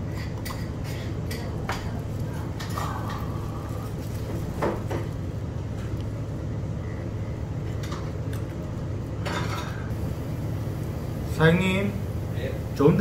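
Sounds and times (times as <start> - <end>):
dishes and cutlery clinking: 0.0 - 3.4, 9.2 - 9.9
steady low hum: 0.0 - 13.0.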